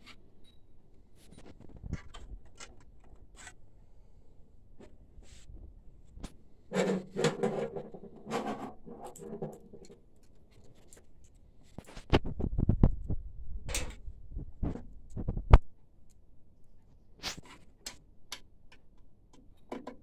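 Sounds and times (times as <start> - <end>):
printer parts scraping: 6.7 - 9.9
printer parts clicking and knocking: 17.8 - 20.0.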